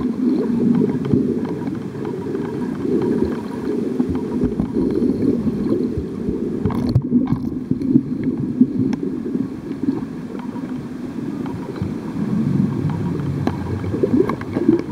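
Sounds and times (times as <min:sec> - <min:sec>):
faint clicks: 0:00.0 - 0:05.8, 0:06.6 - 0:09.1, 0:12.7 - 0:14.9
muffled underwater rumble: 0:00.0 - 0:14.9.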